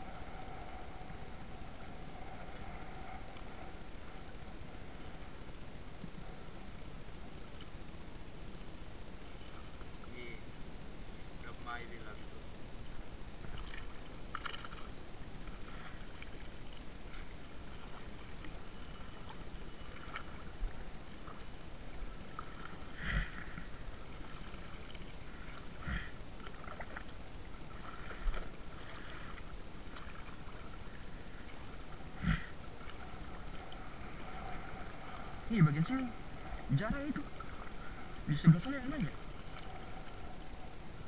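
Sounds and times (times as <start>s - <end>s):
water washing: 13.0s - 41.0s.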